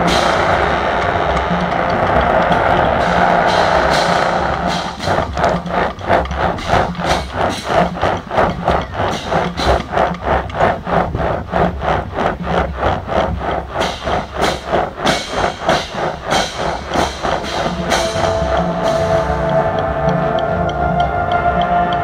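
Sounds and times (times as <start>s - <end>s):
brass line playing: 0.0s - 7.6s, 16.3s - 22.0s.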